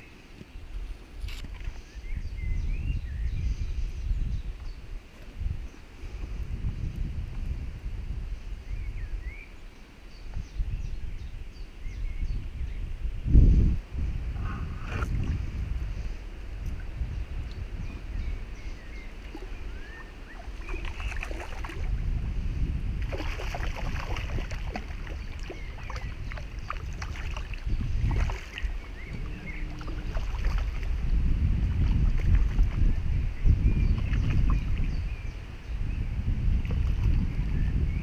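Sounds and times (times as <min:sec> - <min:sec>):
wind rumbling on microphone: 0:00.0 - 0:38.0
water lapping against boat: 0:18.8 - 0:22.2, 0:23.0 - 0:33.1, 0:36.5 - 0:37.4.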